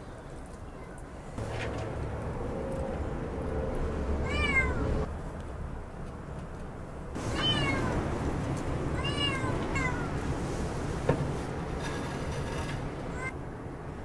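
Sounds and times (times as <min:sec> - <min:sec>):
cat meowing: 0:04.2 - 0:04.9, 0:07.3 - 0:08.0, 0:09.0 - 0:10.2.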